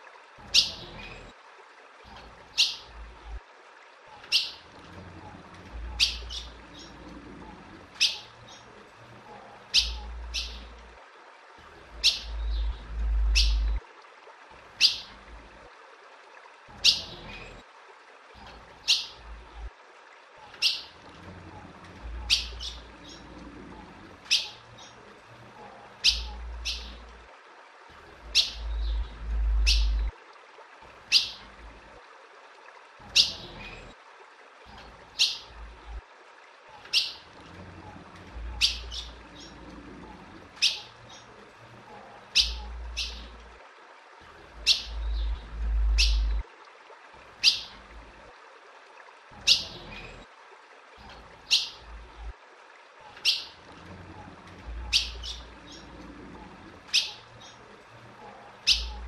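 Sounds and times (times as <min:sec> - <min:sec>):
bird chirping: 0:04.3 - 0:04.6, 0:05.9 - 0:07.0, 0:09.7 - 0:10.7, 0:12.0 - 0:13.8, 0:22.2 - 0:23.2, 0:26.0 - 0:27.0, 0:28.3 - 0:30.1, 0:38.6 - 0:39.6, 0:42.4 - 0:43.3, 0:44.6 - 0:46.4, 0:47.4 - 0:47.7, 0:49.5 - 0:49.7, 0:53.2 - 0:53.6, 0:54.8 - 0:55.9, 0:56.9 - 0:57.6, 0:58.6 - 0:59.0
low rumble: 0:28.6 - 0:30.1, 0:44.9 - 0:46.4.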